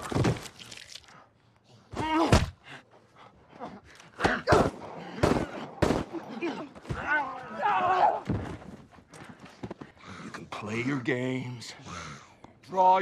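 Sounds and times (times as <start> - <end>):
thuds of bodies and blows: 1.9 - 2.7, 4.2 - 9.9.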